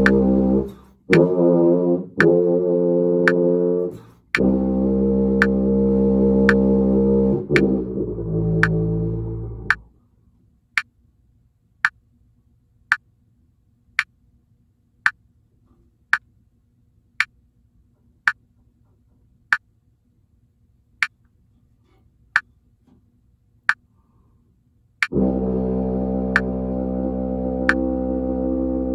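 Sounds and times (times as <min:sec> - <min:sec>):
metronome clicking: 0:06.4 - 0:06.6.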